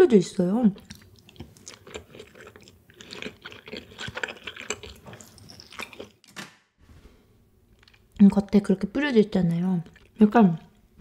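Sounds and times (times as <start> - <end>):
close chewing mouth sounds: 0.7 - 6.2, 7.7 - 8.4, 9.5 - 10.4.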